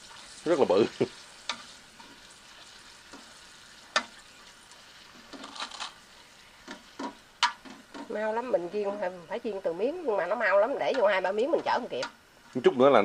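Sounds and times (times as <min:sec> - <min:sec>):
cracker sizzling in hot oil: 0:00.0 - 0:13.0.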